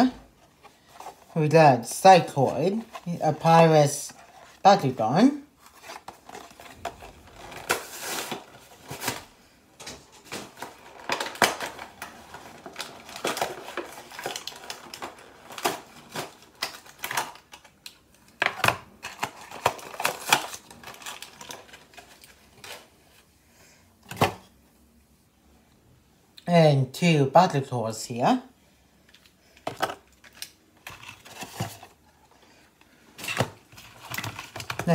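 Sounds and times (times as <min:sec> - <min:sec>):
plastic packaging crinkling: 0:00.8 - 0:22.9, 0:29.1 - 0:32.0, 0:33.1 - 0:34.9.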